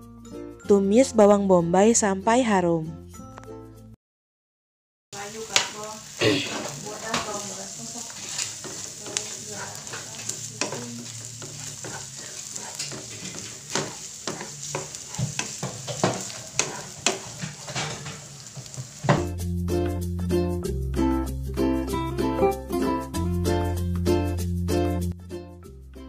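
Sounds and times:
background music: 0.0s - 3.9s, 19.2s - 26.0s
onion sizzling in hot oil: 5.2s - 19.3s
wooden spatula scraping pan: 5.2s - 19.3s.

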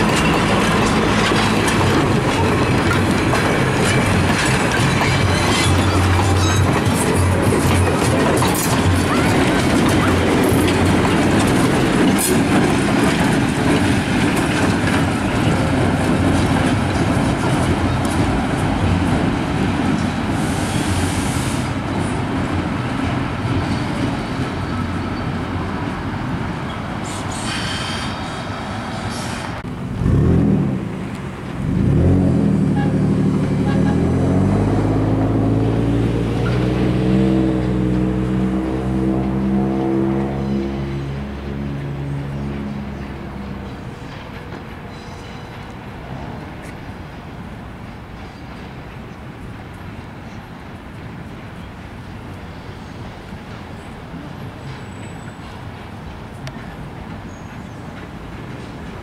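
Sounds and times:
diesel train passing rumble: 0.0s - 59.0s
engine hum rising in pitch: 31.6s - 43.6s.

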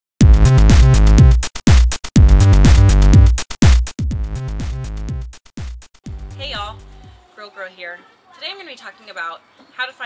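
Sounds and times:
electronic music with drum machine: 0.2s - 7.2s.

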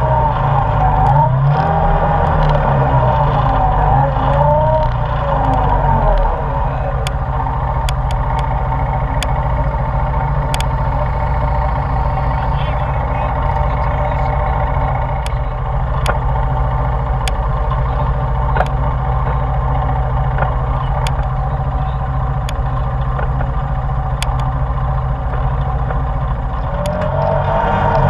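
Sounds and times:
atv engine idling and revving: 0.0s - 28.0s.

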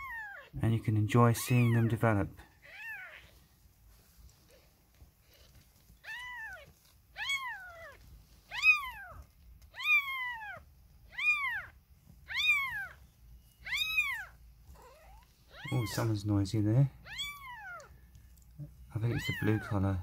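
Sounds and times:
kitten mewing: 6.0s - 13.0s, 13.6s - 16.1s, 17.0s - 17.9s.

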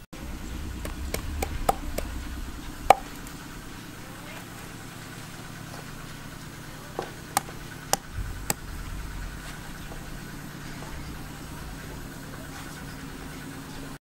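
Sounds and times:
low hum: 0.0s - 13.2s
cleaver chopping on wooden board: 0.8s - 2.1s, 2.9s - 3.1s.

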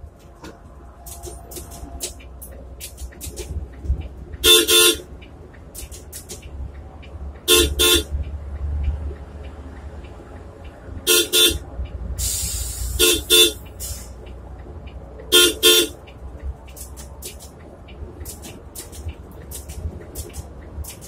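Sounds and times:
bus engine and tyres drone: 0.0s - 21.0s
bus horn double toots: 4.4s - 5.1s, 7.4s - 8.2s, 11.0s - 11.6s, 12.2s - 14.1s, 15.3s - 16.0s
brief hiss: 12.2s - 13.0s.

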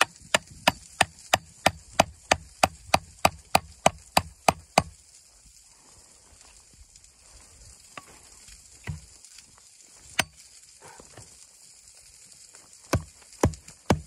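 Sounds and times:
hatchet chopping wood: 0.0s - 5.0s, 8.8s - 9.0s, 10.1s - 10.4s, 12.9s - 14.0s
rain hissing: 0.0s - 14.0s.

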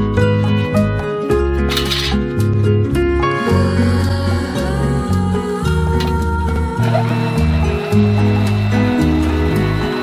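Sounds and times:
background music with bass line: 0.0s - 10.0s.

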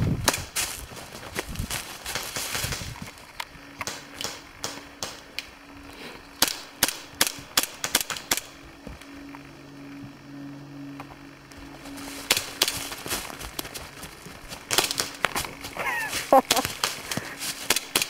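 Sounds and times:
airsoft guns firing: 3.8s - 5.3s, 6.4s - 8.6s, 12.2s - 13.0s, 14.6s - 15.4s, 16.4s - 18.0s.

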